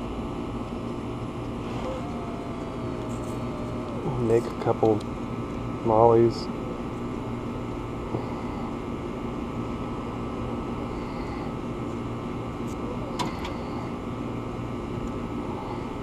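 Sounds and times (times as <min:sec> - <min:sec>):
air conditioner humming: 0:00.0 - 0:16.0.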